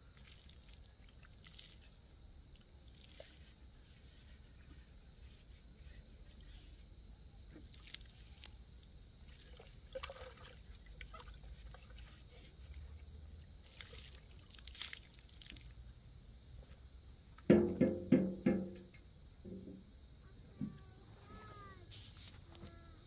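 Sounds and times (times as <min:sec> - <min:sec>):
water pouring from jerrycan: 0:09.3 - 0:11.4, 0:13.6 - 0:15.7.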